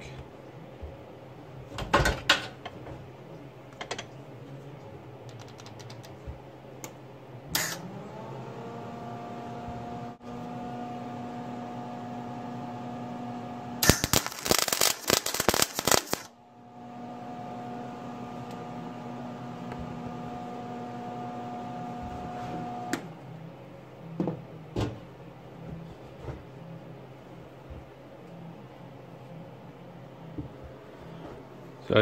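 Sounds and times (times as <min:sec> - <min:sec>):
welder humming: 0:07.5 - 0:23.1
welding arc crackle: 0:13.8 - 0:16.3.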